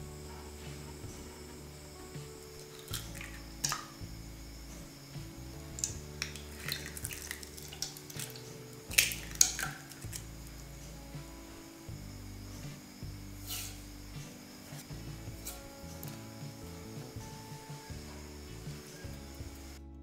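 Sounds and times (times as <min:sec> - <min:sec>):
soft background music: 0:00.0 - 0:20.0
wet plops and drips: 0:02.6 - 0:04.0, 0:05.8 - 0:10.2
eggs cracking on bowl: 0:02.6 - 0:04.1, 0:05.7 - 0:10.4.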